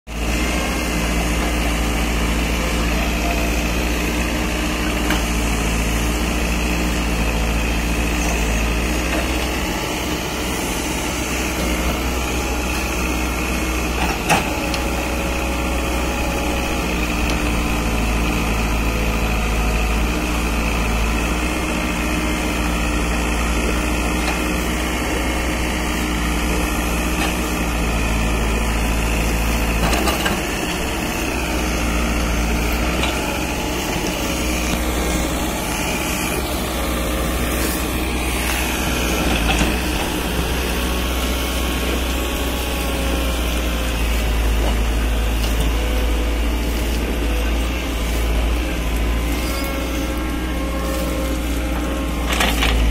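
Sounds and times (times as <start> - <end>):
diesel engine running: 0.1 - 52.9.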